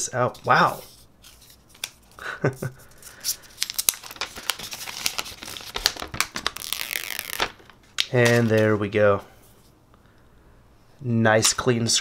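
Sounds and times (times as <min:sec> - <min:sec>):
plastic film crinkling: 0:02.9 - 0:08.8.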